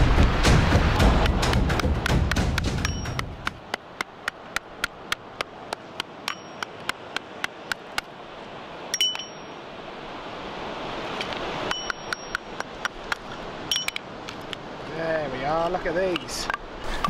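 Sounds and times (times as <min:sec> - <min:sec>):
hammer tapping on rock: 0:01.0 - 0:08.1, 0:11.6 - 0:14.1
ringing clink: 0:02.8 - 0:03.2, 0:06.3 - 0:06.7, 0:08.9 - 0:09.6, 0:11.7 - 0:12.4, 0:13.7 - 0:14.0.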